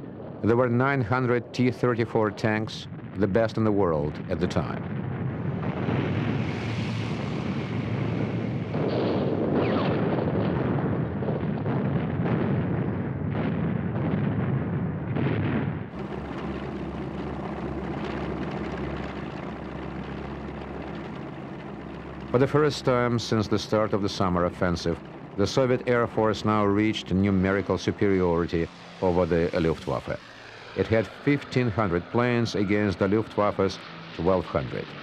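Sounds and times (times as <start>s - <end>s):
propeller aircraft engine drone: 0.0s - 35.0s
explosion blasts: 2.8s - 33.5s
battle rumble: 15.2s - 35.0s.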